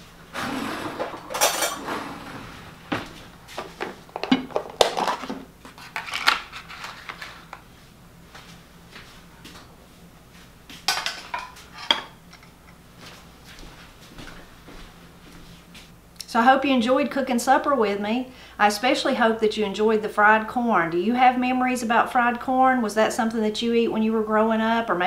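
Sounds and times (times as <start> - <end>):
tableware clinking and knocking: 0.8 - 2.2, 4.2 - 5.4, 10.9 - 12.5.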